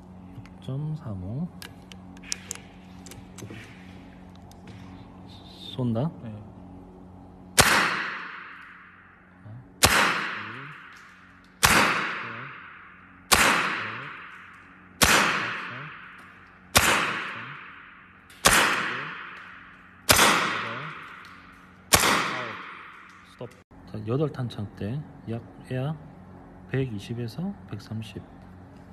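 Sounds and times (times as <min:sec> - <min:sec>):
air rifle shots echoing: 0:07.6 - 0:09.1, 0:09.8 - 0:23.3.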